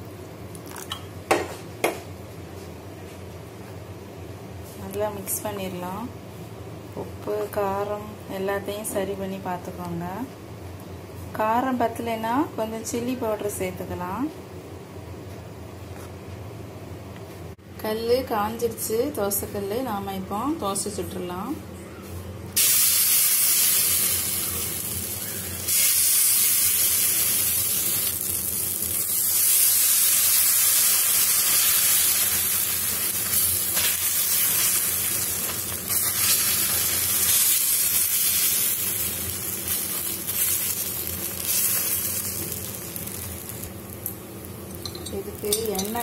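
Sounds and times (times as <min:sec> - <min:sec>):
batter sizzling on hot pan: 0:22.6 - 0:46.0.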